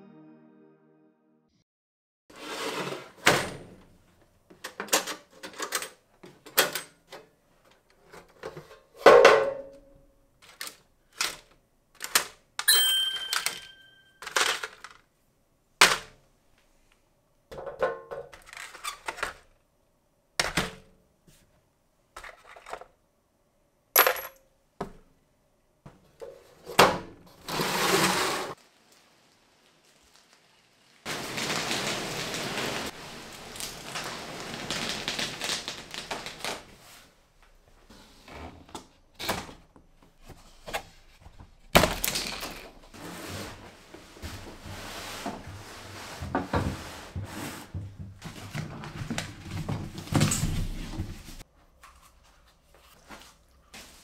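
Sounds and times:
tools clinking in metal case: 12.6s - 14.9s.

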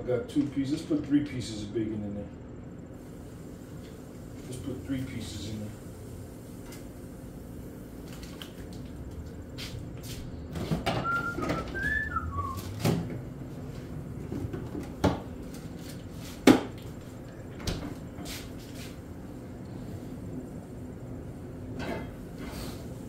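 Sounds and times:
whistled notes: 11.0s - 12.7s.

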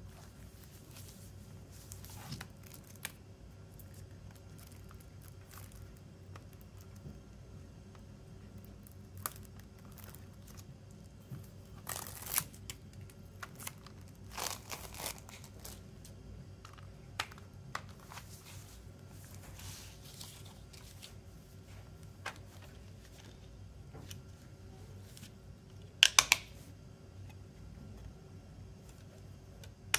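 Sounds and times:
plastic wrapping crinkling and tearing: 1.8s - 7.1s, 8.4s - 18.3s.

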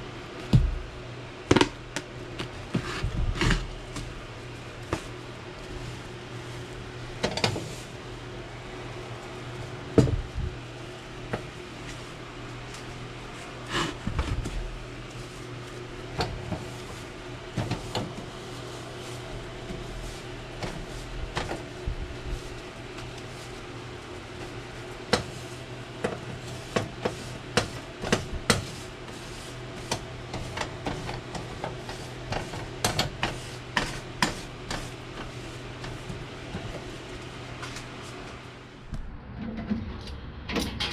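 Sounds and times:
paper towel rubbing stovetop: 0.0s - 39.0s
metal burners clicking and knocking: 6.9s - 8.3s, 9.5s - 40.9s
low hum: 38.6s - 40.8s.

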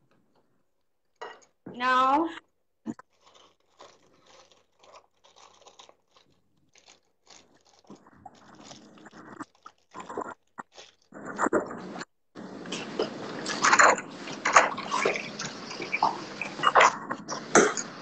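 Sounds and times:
plastic packet crinkling: 3.0s - 11.8s.

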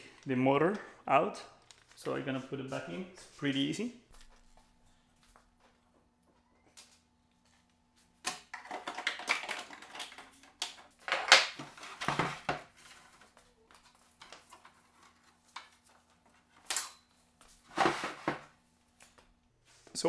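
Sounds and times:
plastic parts clattering and clicking: 8.3s - 13.1s.

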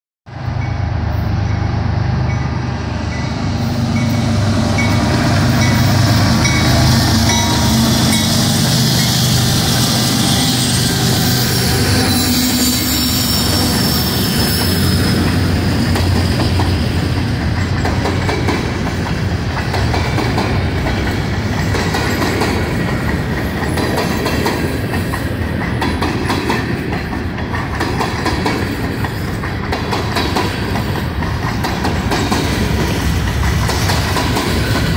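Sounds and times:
diesel locomotive engine: 0.3s - 34.9s
train cars rattling over rail joints: 2.3s - 34.9s
high wheel squeal: 3.2s - 16.6s.

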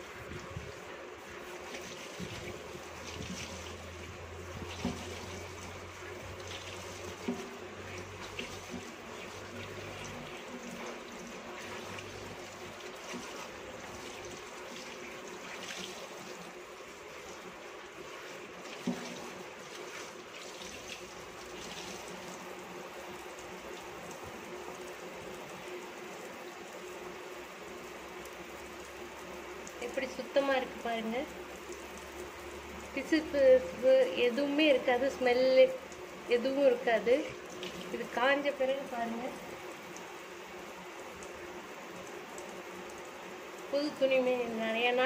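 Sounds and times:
cloth rinsed and squeezed: 0.3s - 22.7s, 29.6s - 40.1s
faucet water spraying into sink: 1.5s - 24.8s, 29.5s - 40.4s.

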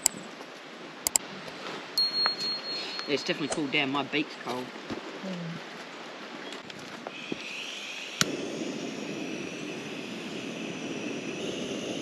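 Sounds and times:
gas torch flame hissing: 7.1s - 12.0s.

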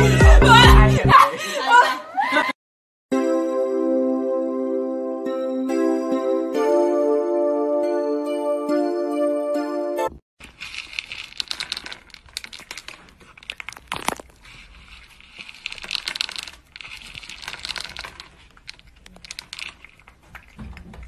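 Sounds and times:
cat crunching dry kibble: 10.4s - 21.0s.

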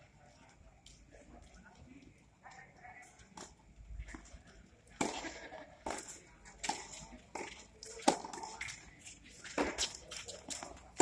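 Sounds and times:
tennis ball hits and bounces: 4.9s - 8.8s, 9.4s - 11.0s.

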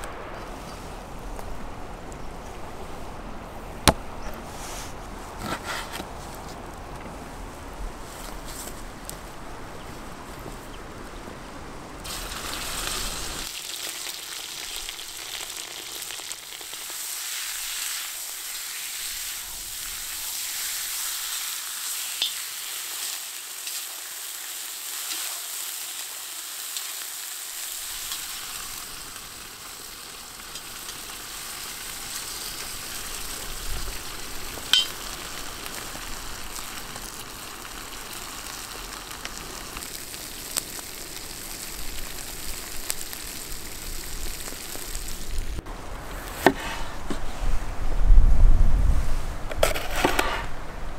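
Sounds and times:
meat sizzling in a pot: 12.0s - 45.6s.

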